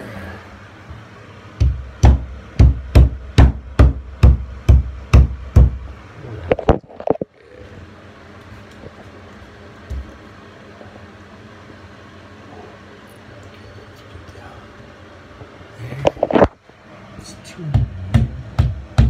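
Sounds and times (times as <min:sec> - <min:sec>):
hammer strikes: 0:01.6 - 0:05.8, 0:17.7 - 0:19.0.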